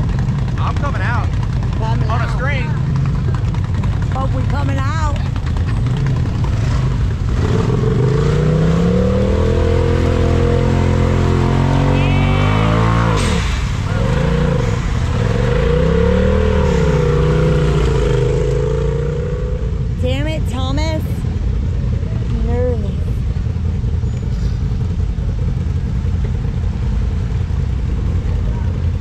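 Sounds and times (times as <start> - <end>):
engine revving under load: 0.0 - 20.0.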